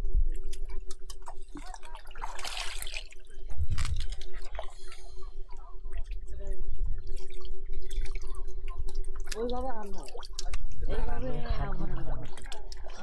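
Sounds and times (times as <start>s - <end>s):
water splash: 1.2s - 4.8s
water dripping: 5.5s - 10.9s.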